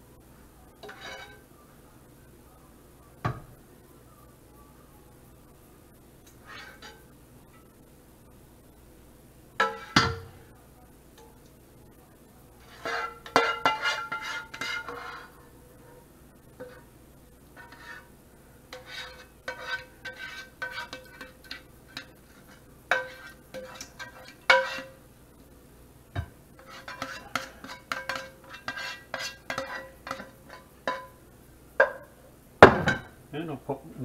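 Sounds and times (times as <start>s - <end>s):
metal utensils clinking on saucepan: 0.8s - 1.4s, 12.7s - 15.3s, 18.8s - 25.0s, 26.6s - 31.2s
sharp knocks on saucepan: 31.8s - 33.1s.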